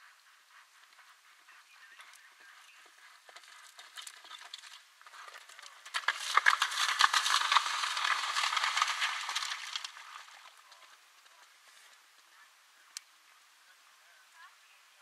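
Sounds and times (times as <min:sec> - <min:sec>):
faint hoofbeats: 0:00.0 - 0:06.0
hooves splashing in water: 0:02.8 - 0:11.7.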